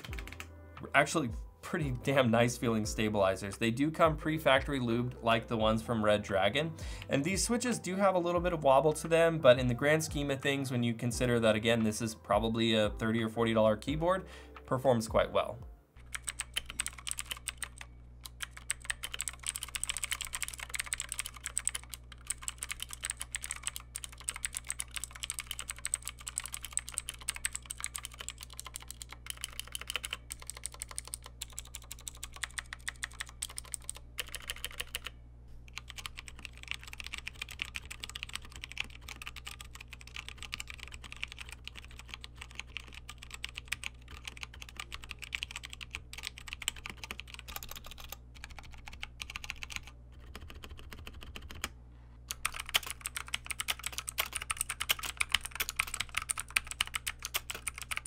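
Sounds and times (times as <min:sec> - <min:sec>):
mechanical keyboard keystroke clacks: 0:00.0 - 0:00.4, 0:16.1 - 0:35.1, 0:35.8 - 0:51.7, 0:52.3 - 0:58.0.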